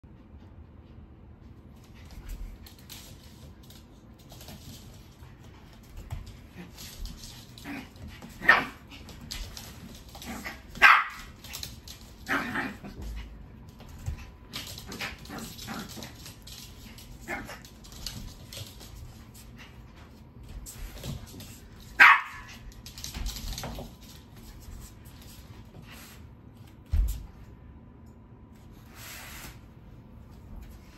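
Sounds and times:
paws scuffling on wooden floor: 0.4 - 27.5, 28.6 - 30.9
small dog barking: 10.8 - 11.3, 22.0 - 22.5.

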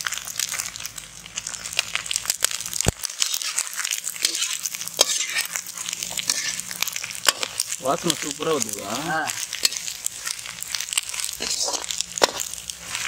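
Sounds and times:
liver sizzling in hot oil: 0.0 - 13.0
metal spatula scraping pan: 3.2 - 8.2, 11.1 - 13.0.

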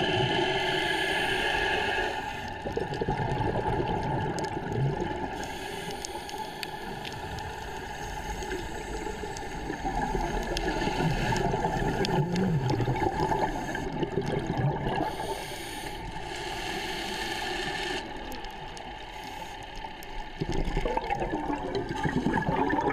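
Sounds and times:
scuba regulator breathing: 0.0 - 2.8, 5.3 - 14.3, 14.9 - 20.4
air bubbling underwater: 20.4 - 22.9.

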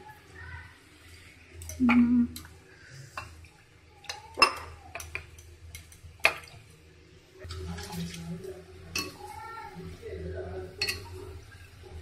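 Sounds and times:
metal cookware clinking: 4.0 - 6.7, 7.4 - 9.5, 10.5 - 12.0.

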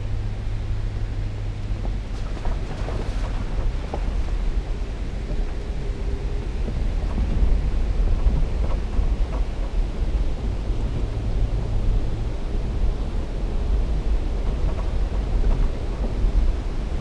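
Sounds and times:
vehicle engine and tyres on stones: 0.0 - 17.0
wind buffeting microphone: 0.0 - 17.0.

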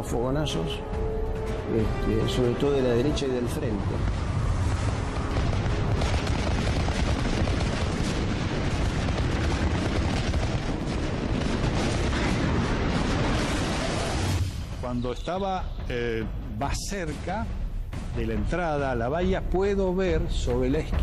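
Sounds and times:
low rumble: 3.2 - 14.9
explosions: 3.2 - 15.4
anti-aircraft gunfire: 3.9 - 14.4.

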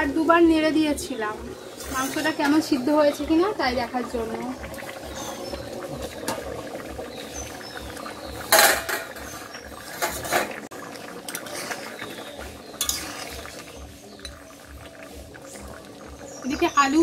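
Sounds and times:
metal lid clanking: 8.4 - 10.6.

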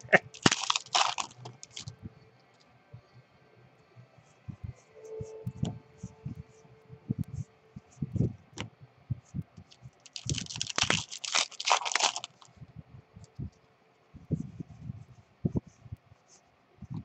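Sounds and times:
wrapper crinkling and tearing: 0.0 - 1.9, 10.0 - 12.5.

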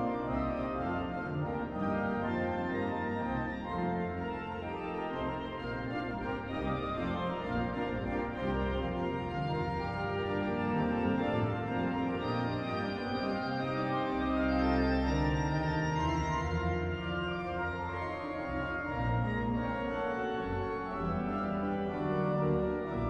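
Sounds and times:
organ music: 0.0 - 23.0.

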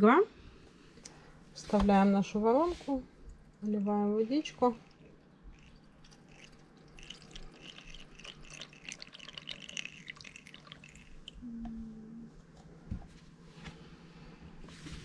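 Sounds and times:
water trickling into tank: 3.5 - 11.4.

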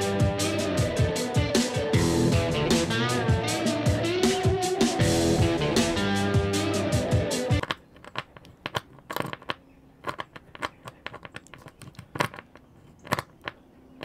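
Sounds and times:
screwdriver clicks and taps: 7.6 - 13.6.

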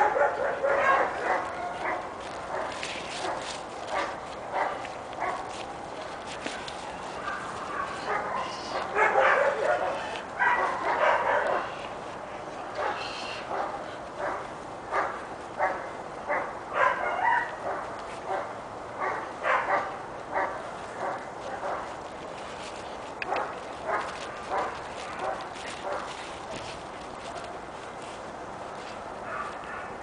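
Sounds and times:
puppy barking and yipping: 0.0 - 5.5, 7.2 - 11.8, 12.8 - 21.8.

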